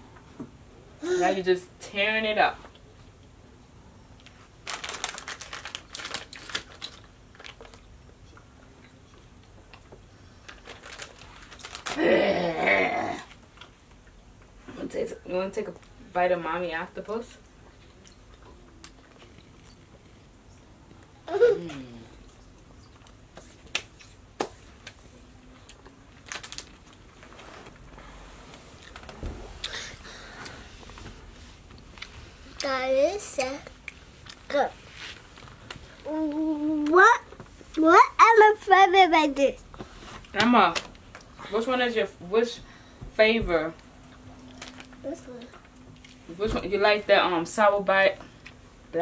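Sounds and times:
plastic bag crinkling: 4.6 - 7.8, 10.5 - 12.1, 26.1 - 27.5.

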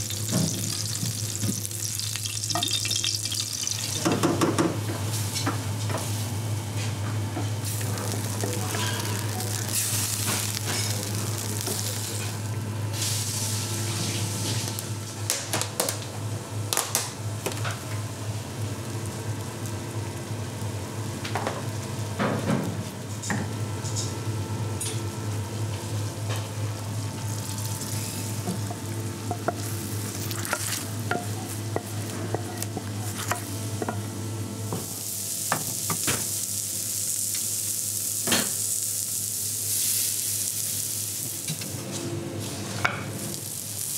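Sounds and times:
sauce sizzling: 0.0 - 4.1, 7.6 - 13.6, 26.1 - 34.2, 34.8 - 41.6, 43.2 - 43.9.

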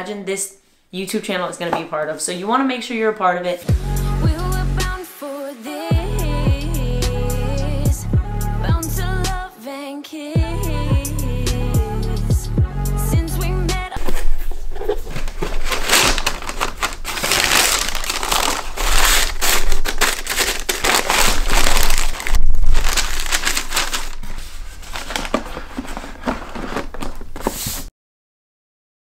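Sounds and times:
tissue paper crinkling: 14.0 - 27.9.

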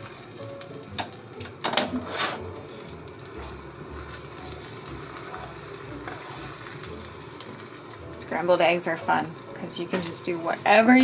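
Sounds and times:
eggs sizzling in a pan: 0.0 - 11.0
spatula scraping a pan: 1.7 - 2.8, 5.2 - 6.8.

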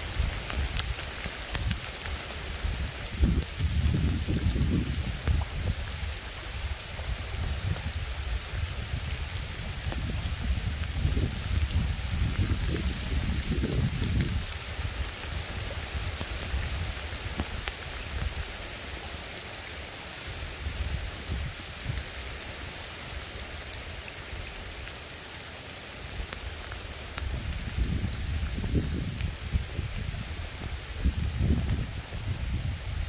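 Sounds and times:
rain falling on a river: 0.0 - 33.0.

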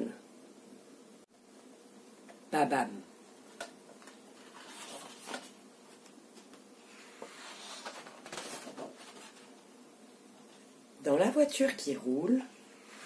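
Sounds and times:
book pages turning: 3.5 - 9.6.

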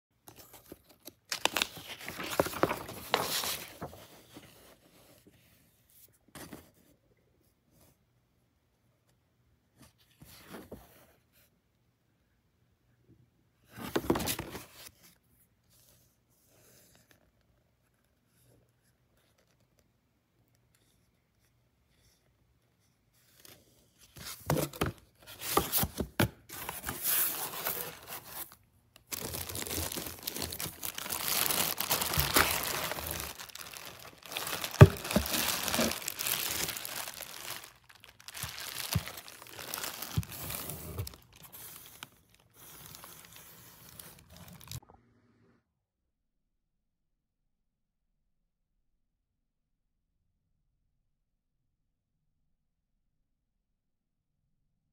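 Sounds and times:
plastic bags crinkling in a box: 29.1 - 42.4.

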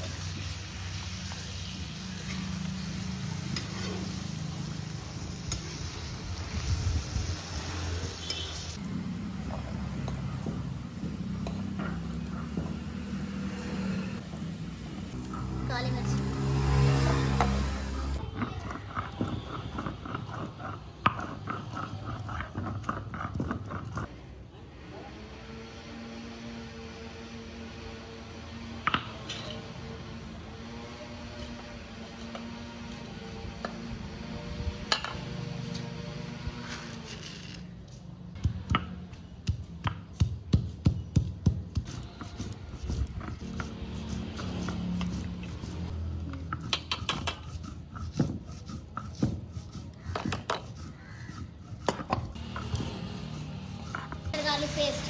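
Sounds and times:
grinding stone scraping on stone: 15.1 - 24.3, 28.7 - 37.9, 41.7 - 55.0
hard object clacking on stone: 46.4 - 47.5.

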